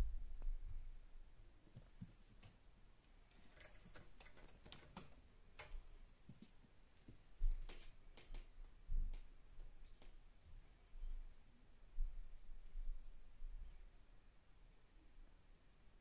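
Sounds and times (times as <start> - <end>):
soft low thumps: 0.0 - 1.1, 11.9 - 13.6
cat claws clicking on wooden floor: 3.5 - 5.8, 7.5 - 9.2.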